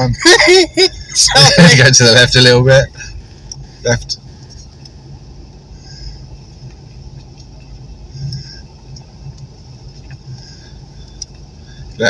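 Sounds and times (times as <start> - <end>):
car engine low hum: 0.0 - 12.0
road noise: 0.0 - 12.0.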